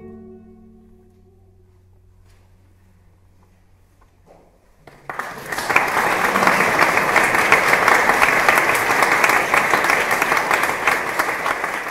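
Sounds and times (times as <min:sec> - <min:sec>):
audience applauding: 0:04.8 - 0:11.9.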